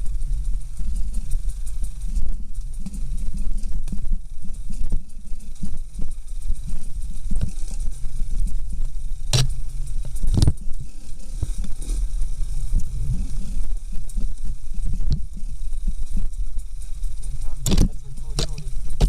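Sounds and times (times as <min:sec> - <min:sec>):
motorcycle engine at low revs: 0:00.0 - 0:19.0
knocks and rattles over stones: 0:00.1 - 0:19.0.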